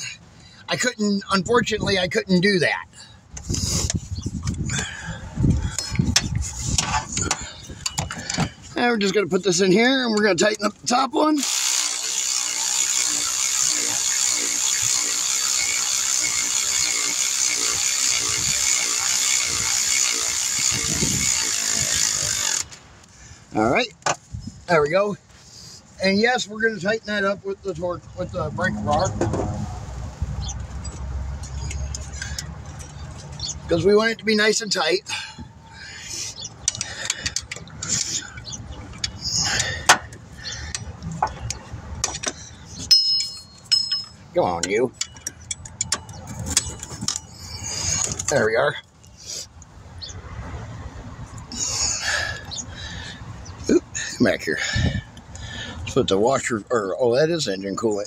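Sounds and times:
electric ratchet whirring: 11.4 - 22.8.

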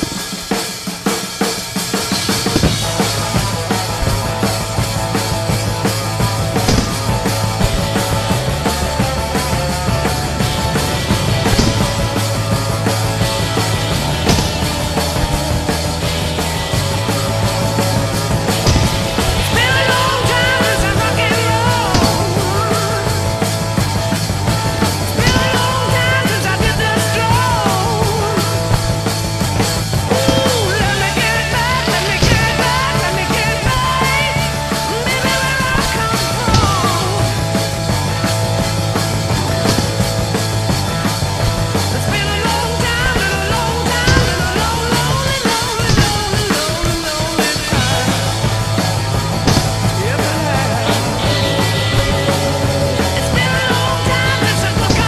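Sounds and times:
loud rock music: 0.0 - 55.0
person singing: 19.4 - 23.4, 25.1 - 28.8, 30.1 - 37.6, 49.9 - 55.0.

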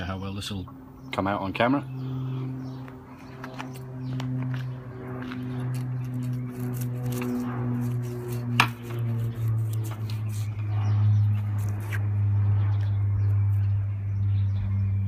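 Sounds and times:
steady low hum: 0.0 - 15.0
potato crunching on pipe: 3.6 - 10.7, 11.3 - 12.2.

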